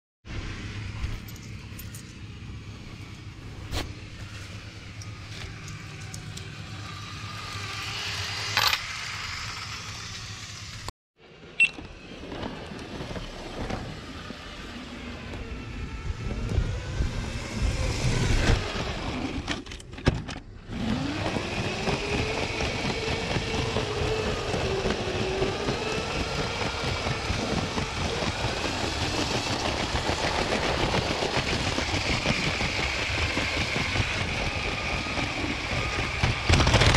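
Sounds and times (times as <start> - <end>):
toy train motor whirring: 4.2 - 10.9, 20.8 - 36.9.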